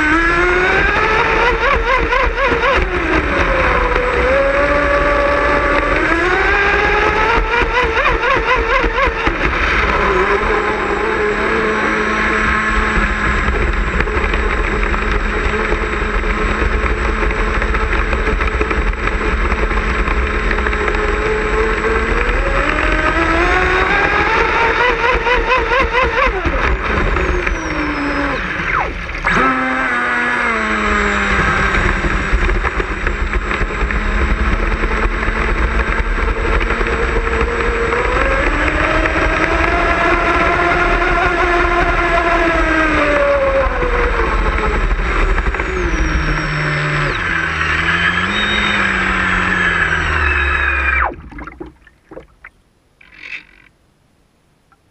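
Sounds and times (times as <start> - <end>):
boat motor whining: 0.0 - 35.1, 35.9 - 53.7
water and wind rushing: 50.9 - 52.6.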